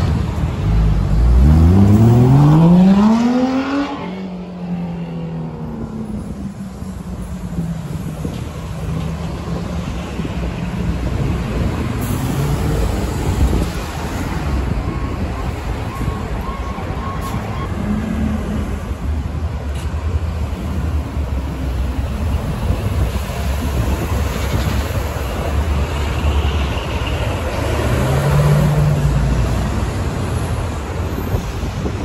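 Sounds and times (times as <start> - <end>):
vehicle passing by: 1.0 - 4.8.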